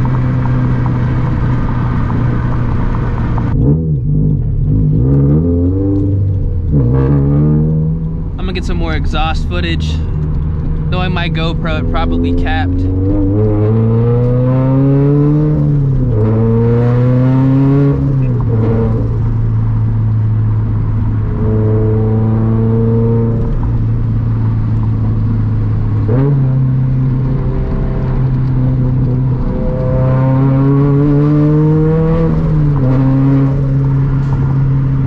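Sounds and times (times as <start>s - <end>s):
car engine revving through gears: 0.0s - 35.0s.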